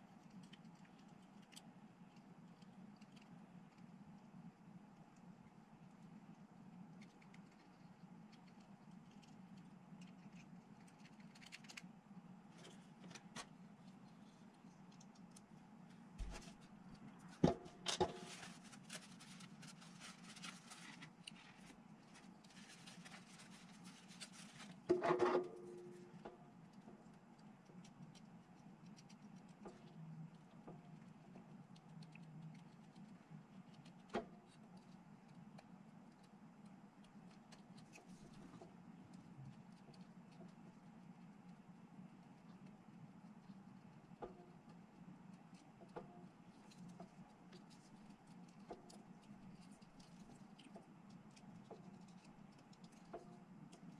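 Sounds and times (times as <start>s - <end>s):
low steady hum: 0.0s - 53.9s
small clicks and taps of plastic parts: 0.2s - 3.8s, 45.4s - 53.9s
cloth rustling over parts: 16.2s - 24.9s.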